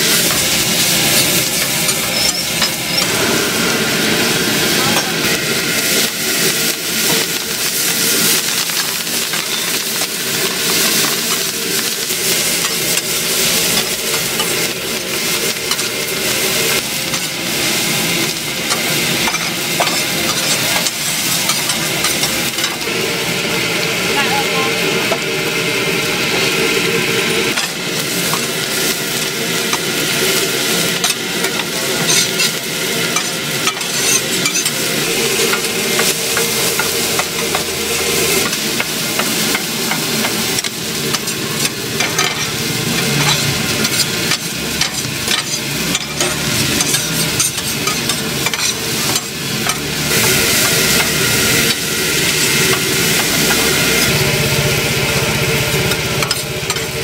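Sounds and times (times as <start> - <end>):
metal spatulas scraping griddle: 0.0 - 3.4, 18.3 - 22.8, 31.0 - 38.9, 39.5 - 54.2
rice sizzling on griddle: 0.0 - 57.0.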